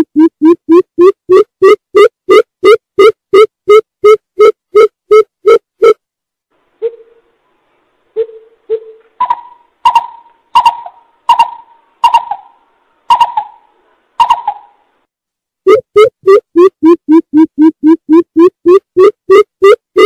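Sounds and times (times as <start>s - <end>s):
bird hooting: 6.8s - 7.3s, 8.2s - 14.8s.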